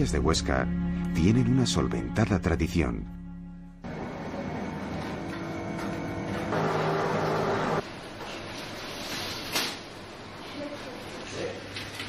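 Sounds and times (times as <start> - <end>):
machine hum: 3.8 - 7.8.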